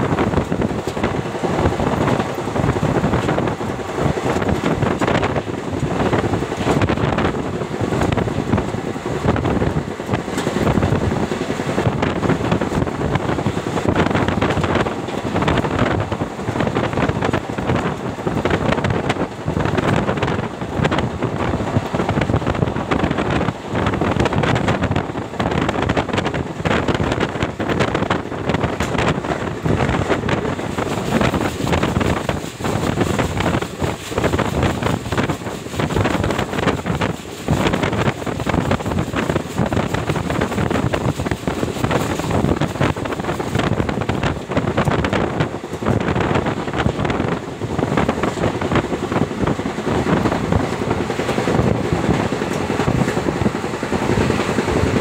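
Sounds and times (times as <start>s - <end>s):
train wheels rumbling on track: 0.0s - 55.0s
wind buffeting microphone: 0.0s - 55.0s.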